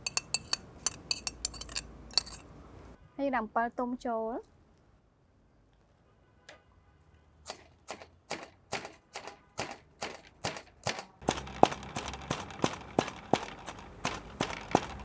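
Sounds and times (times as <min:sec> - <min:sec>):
wooden pestle pounding in mortar: 0:11.2 - 0:15.0.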